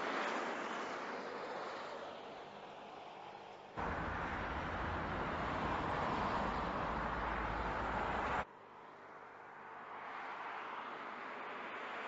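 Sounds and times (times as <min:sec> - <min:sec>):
faint road noise: 0:01.4 - 0:12.0.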